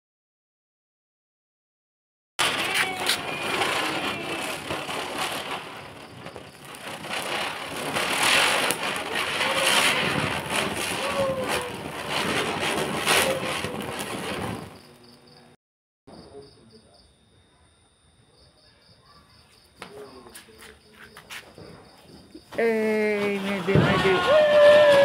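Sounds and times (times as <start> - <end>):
firework sparks hissing: 2.4 - 15.1, 19.8 - 25.0
firework crackles: 2.4 - 15.5, 19.8 - 25.0.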